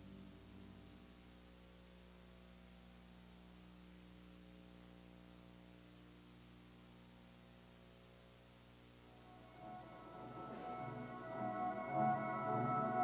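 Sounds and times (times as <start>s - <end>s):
faint hum with hiss: 0.0s - 13.0s.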